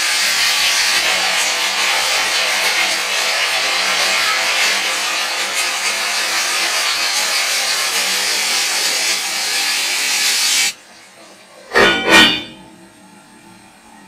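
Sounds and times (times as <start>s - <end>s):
food sizzling in a hot pan: 0.0s - 10.8s.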